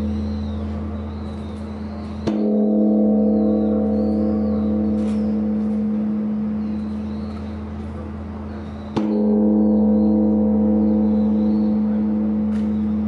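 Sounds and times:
deep bell ringing hum: 0.0s - 13.0s
temple bell struck by wooden log: 2.1s - 7.6s, 8.8s - 13.0s.

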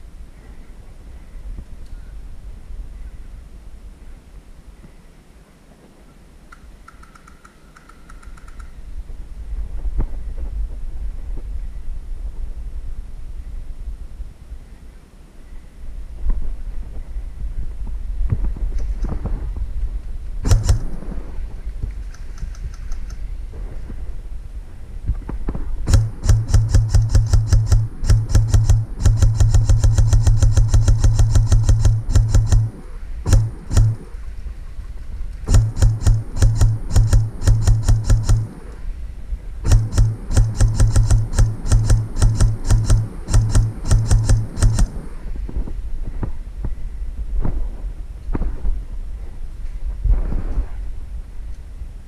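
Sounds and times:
low mechanical buzz: 0.0s - 5.4s, 6.7s - 48.4s
scattered clicks: 6.5s - 8.8s, 20.5s - 23.3s, 25.9s - 34.3s, 35.3s - 38.9s, 39.7s - 45.2s
airsoft rifle firing: 20.4s - 23.2s, 25.4s - 34.4s, 35.4s - 39.0s, 39.6s - 45.4s.

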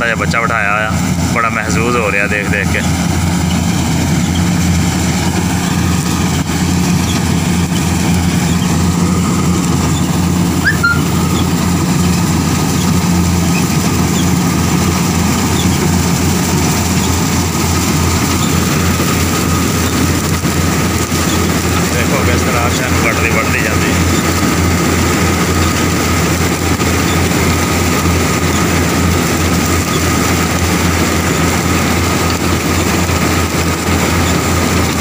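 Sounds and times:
combine harvester drone: 0.0s - 35.0s
faint steady high tone: 10.6s - 11.5s.

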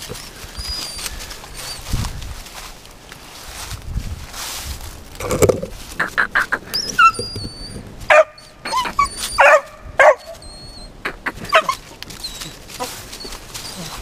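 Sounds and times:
dog barking: 8.1s - 10.4s, 11.4s - 11.8s.

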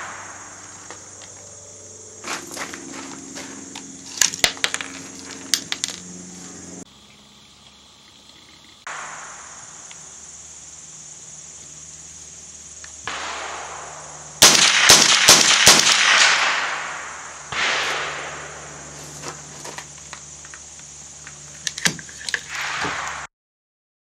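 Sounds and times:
rifle shots in quick succession: 13.1s - 19.0s, 22.4s - 23.3s.

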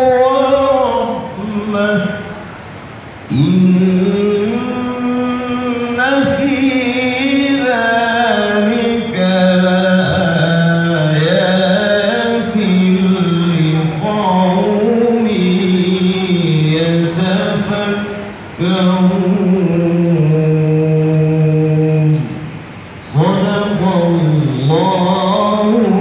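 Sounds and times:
person reciting melodically: 0.0s - 2.6s, 3.2s - 26.0s.

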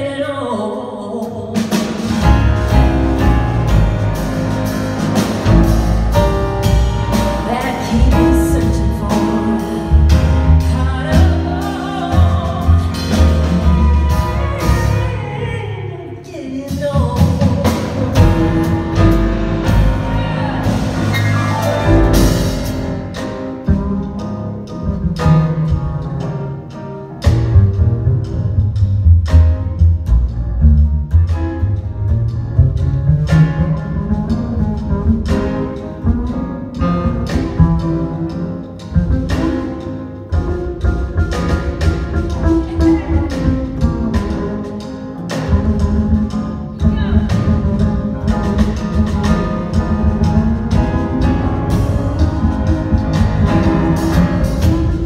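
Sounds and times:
grand piano: 0.0s - 55.0s
drum kit: 1.1s - 55.0s
upright bass: 1.6s - 15.8s, 16.7s - 55.0s.

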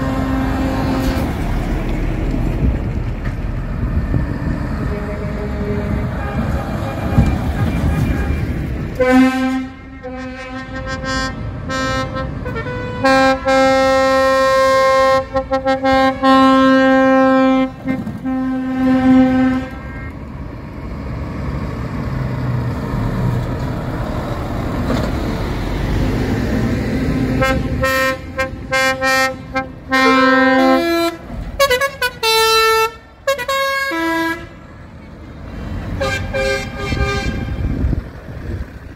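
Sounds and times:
truck air horn blasts: 0.0s - 1.2s, 4.8s - 20.1s, 27.3s - 34.6s, 36.0s - 37.8s
diesel truck engine and tyres: 0.0s - 38.9s.

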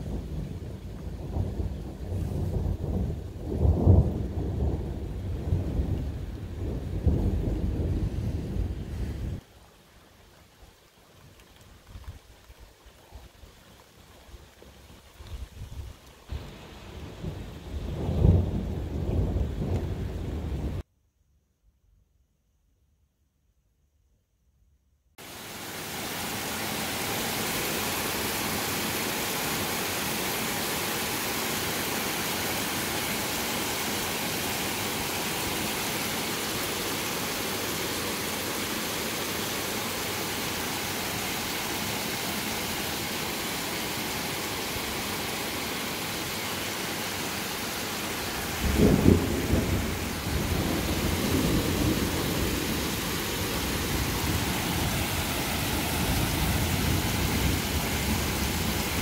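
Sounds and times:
thunder clap and rumble: 0.0s - 9.4s, 16.3s - 20.8s, 48.4s - 59.0s
heavy rain hissing: 0.0s - 20.8s, 25.2s - 59.0s.

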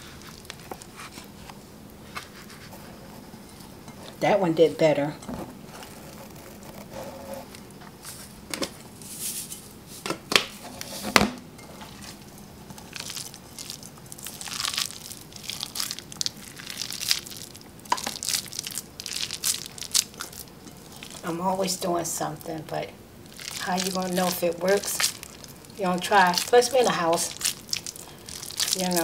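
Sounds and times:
hands squishing burger mix: 0.0s - 1.4s, 11.9s - 21.4s, 23.2s - 29.0s.

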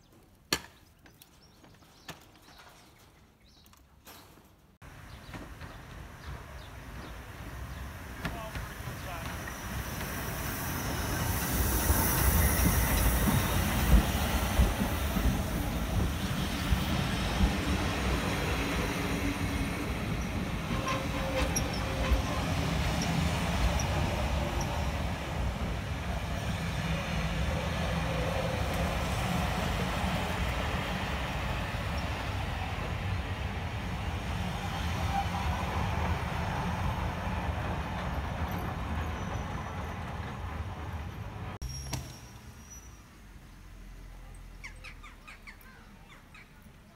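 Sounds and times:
carriages rumbling past: 4.8s - 46.9s
steam hissing: 7.4s - 25.6s.

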